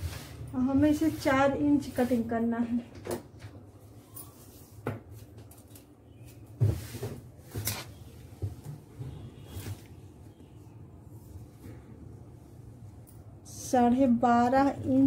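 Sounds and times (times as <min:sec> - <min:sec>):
fabric rustling: 0:06.7 - 0:11.6.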